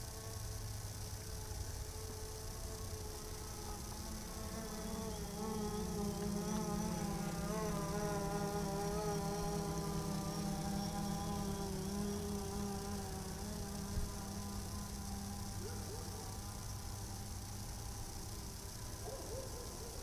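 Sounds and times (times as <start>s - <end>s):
drone propellers buzzing: 2.0s - 16.2s.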